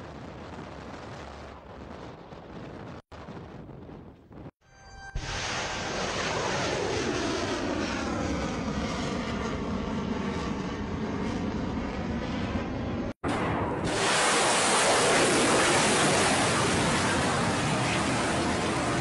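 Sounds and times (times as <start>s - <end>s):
rocket booster roar: 13.2s - 19.0s.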